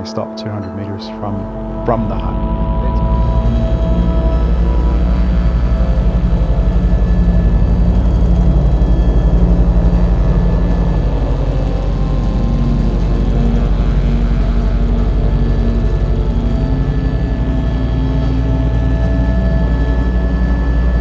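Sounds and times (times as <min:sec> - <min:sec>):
helicopter rotor and turbine drone: 0:00.0 - 0:21.0.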